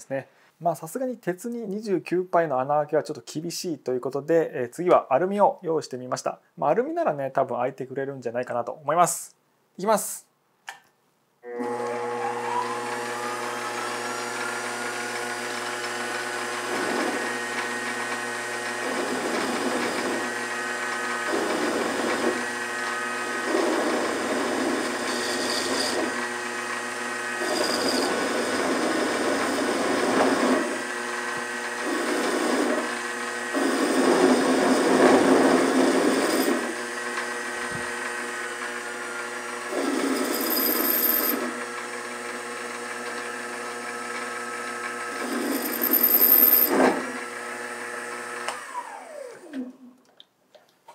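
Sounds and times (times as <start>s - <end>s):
drill cutting metal: 11.5s - 49.2s
lathe motor whining: 11.5s - 49.8s.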